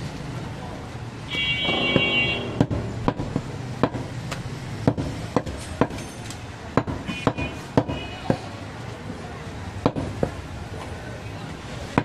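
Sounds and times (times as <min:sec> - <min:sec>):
cleaver chopping meat on wooden block: 0:02.6 - 0:06.0, 0:06.7 - 0:08.4, 0:09.8 - 0:10.4.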